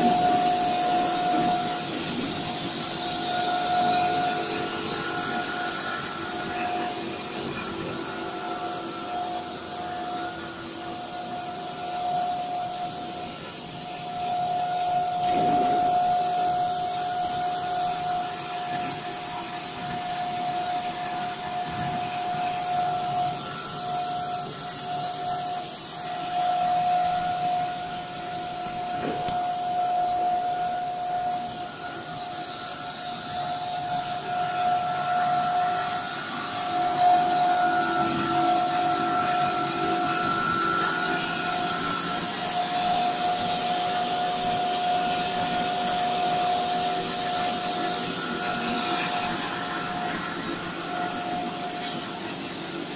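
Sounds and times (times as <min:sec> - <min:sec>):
machine hum with whine: 0:00.0 - 0:52.9.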